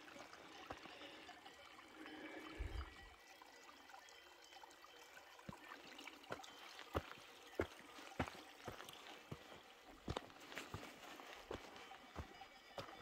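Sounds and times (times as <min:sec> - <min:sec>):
faint trickling water: 0:00.0 - 0:13.0
footsteps crunching on rocky ground: 0:06.3 - 0:13.0.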